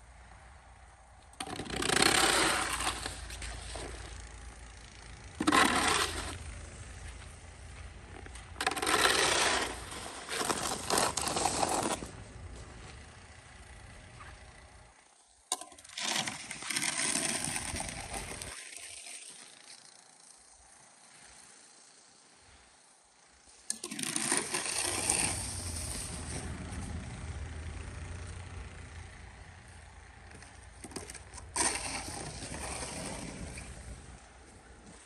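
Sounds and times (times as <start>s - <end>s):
shovel scraping on concrete: 1.4s - 4.5s, 5.4s - 12.9s, 15.5s - 19.5s, 23.7s - 27.0s, 30.3s - 34.1s.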